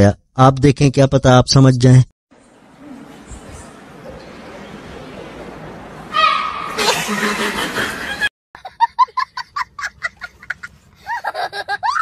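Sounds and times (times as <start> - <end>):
boy laughing: 6.7 - 12.0.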